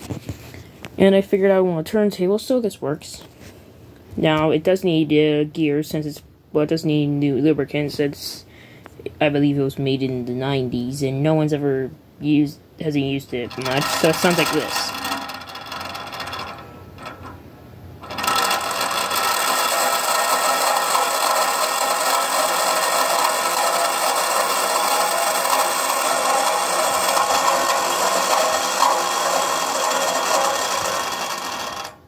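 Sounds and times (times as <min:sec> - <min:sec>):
model turntable motor whirring: 0:13.3 - 0:17.4, 0:18.0 - 0:32.0.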